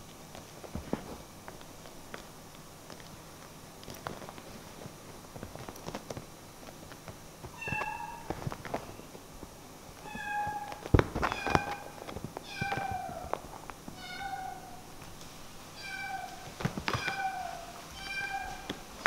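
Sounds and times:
soft scuffling and knocks: 0.0 - 10.0, 16.2 - 19.0.

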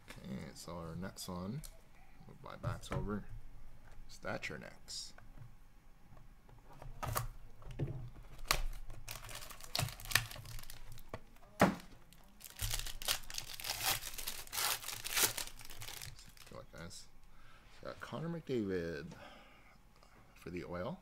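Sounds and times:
plastic wrapper crinkling: 8.3 - 11.2, 12.1 - 16.6.

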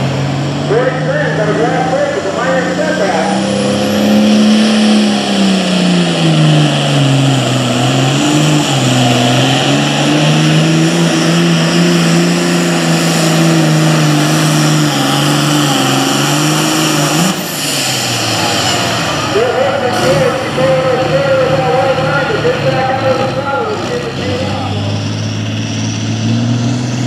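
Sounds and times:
tractor diesel engine running flat out: 0.0 - 27.0.

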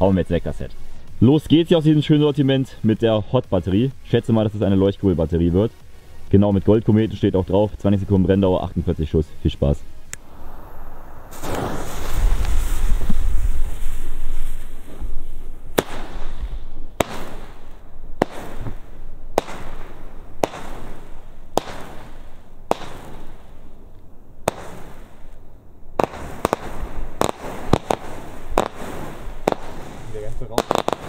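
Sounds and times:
firework hiss: 0.0 - 31.0
firework launch bangs: 10.2 - 23.8, 24.4 - 25.4, 26.0 - 31.0.

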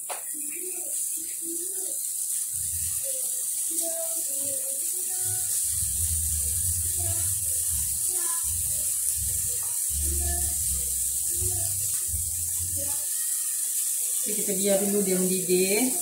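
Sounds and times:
gravy bubbling in a wok: 0.0 - 16.0
steady hiss: 0.0 - 16.0
low rumble: 5.7 - 12.9.

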